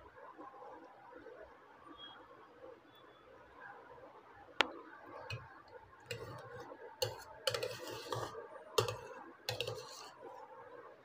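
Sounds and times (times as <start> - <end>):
utensils tapping and scraping: 5.3 - 10.4.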